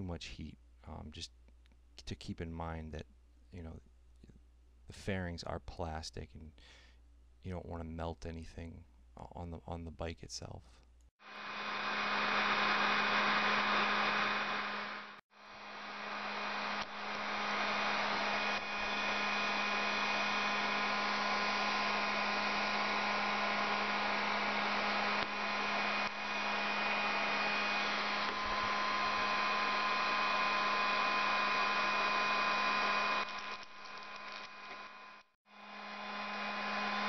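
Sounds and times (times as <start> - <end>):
heat gun blowing hiss and hum: 11.2 - 37.0.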